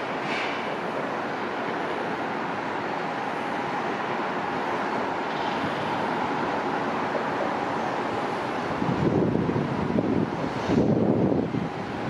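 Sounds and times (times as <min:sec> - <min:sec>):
distant jet engines running up: 0:00.0 - 0:12.0.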